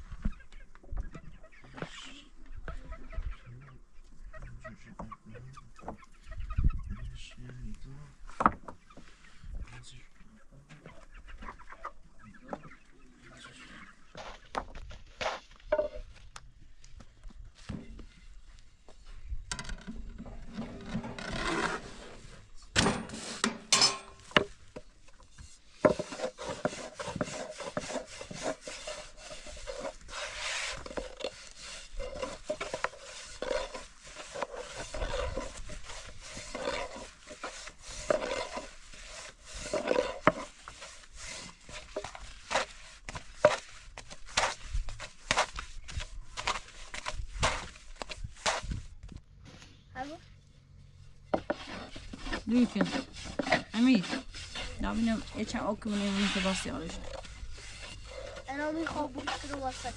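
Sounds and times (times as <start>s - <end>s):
wooden knocks and clacks: 8.3s - 9.1s
rolling pin rubbing dough: 25.3s - 48.8s, 51.3s - 59.9s.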